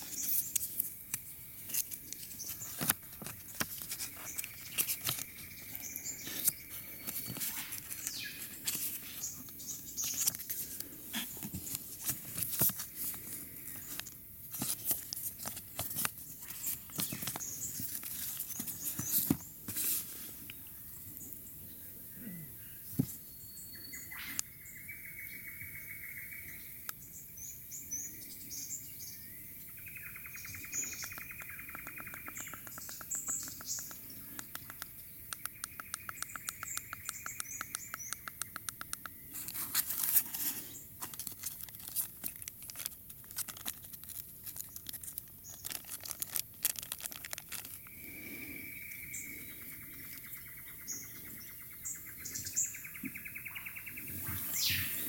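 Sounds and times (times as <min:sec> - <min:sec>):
higher bird chirps: 0:22.2 - 0:39.4, 0:47.9 - 0:55.0
bird trills: 0:29.7 - 0:39.3
clicks and taps of small items: 0:31.0 - 0:39.2.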